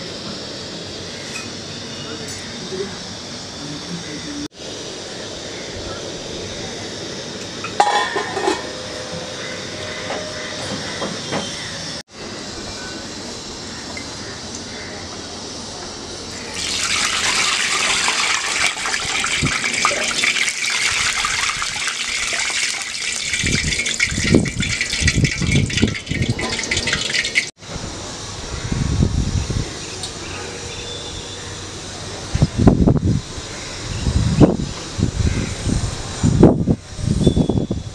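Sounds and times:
hot oil sizzling and spattering: 16.4s - 27.5s.

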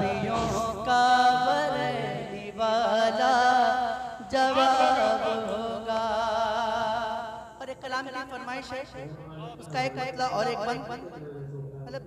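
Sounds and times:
man singing melismatic notes: 0.0s - 8.4s.

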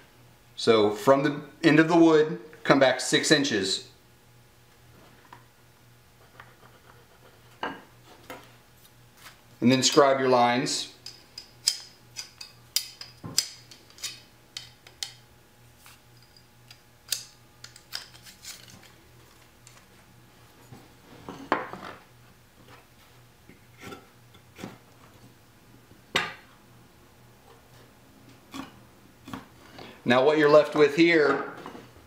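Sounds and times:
scrape on wood: 6.2s - 8.2s.

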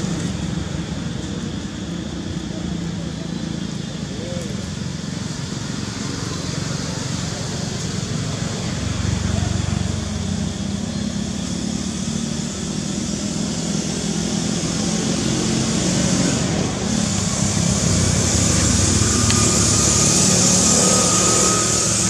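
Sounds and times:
vehicle engine running: 0.0s - 22.0s
high hiss: 11.2s - 22.0s.

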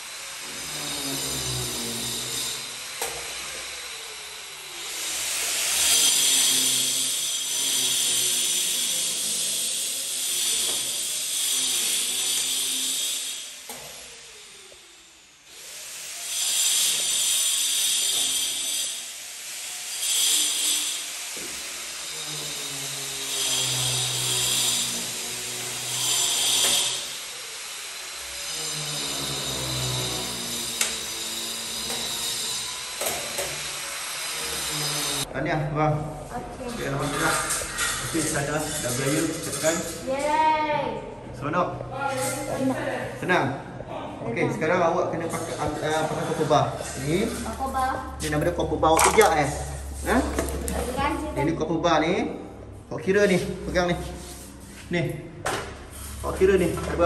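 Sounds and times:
power tool motor whining: 0.0s - 35.3s.

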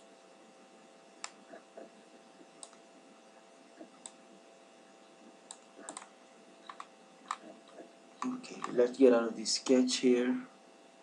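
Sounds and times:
faint steady hum: 0.0s - 11.0s
computer mouse clicks: 1.2s - 1.9s, 2.6s - 2.8s, 3.8s - 4.2s, 5.4s - 8.8s.

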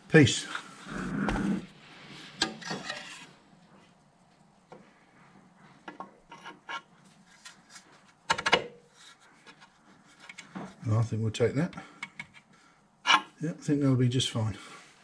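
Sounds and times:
metal shaft scraping in bush: 2.4s - 3.4s.

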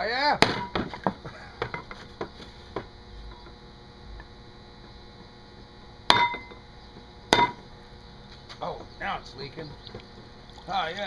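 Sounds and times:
hatchet striking coconut shell: 0.4s - 0.9s, 6.1s - 6.6s, 7.3s - 7.6s.

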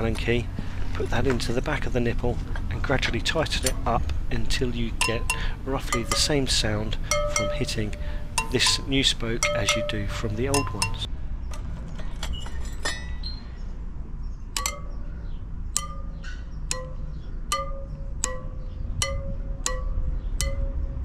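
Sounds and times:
metal tool pinging spokes: 2.8s - 11.1s, 14.5s - 21.0s.

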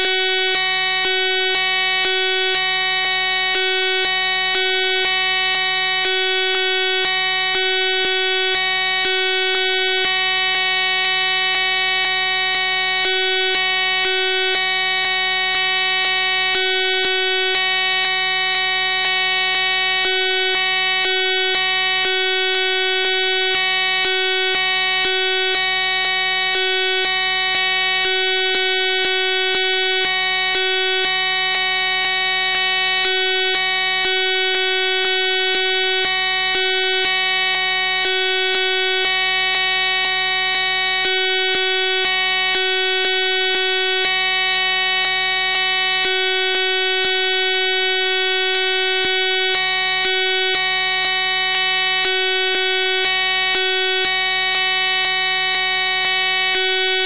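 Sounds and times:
loud electronic buzzing: 0.0s - 10.1s.

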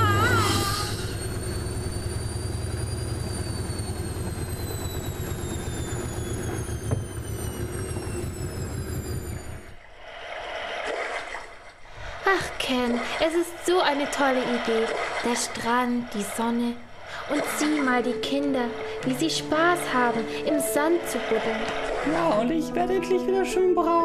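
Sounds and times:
jet airliner engine noise: 0.0s - 10.4s
high turbine whine: 0.0s - 10.9s, 12.5s - 22.8s.

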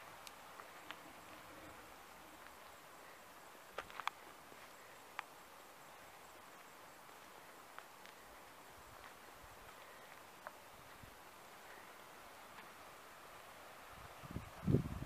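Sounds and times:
quiet steady hiss: 0.0s - 15.0s.

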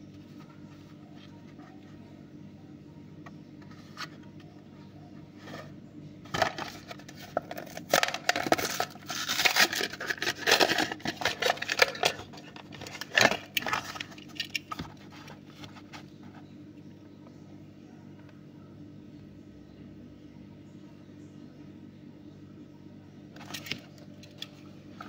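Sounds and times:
plastic bubble crinkling: 6.3s - 16.0s
cardboard backing ripping: 7.8s - 12.1s.

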